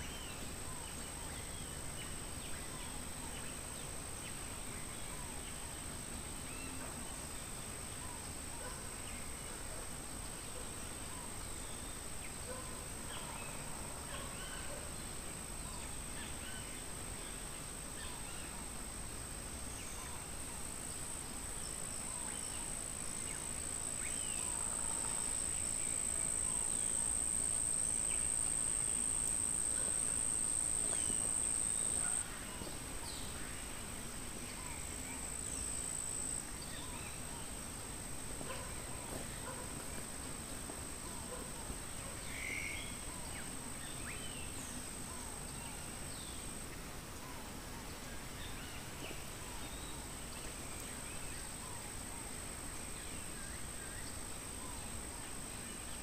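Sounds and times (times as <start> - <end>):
insects calling high-pitched: 23.9 - 32.2.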